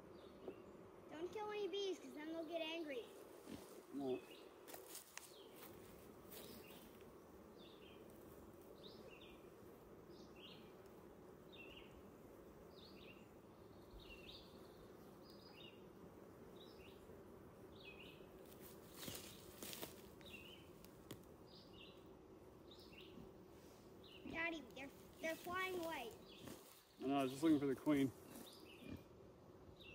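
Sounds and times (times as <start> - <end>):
honeybees buzzing: 0.0 - 29.9
bird chirping: 12.7 - 15.8.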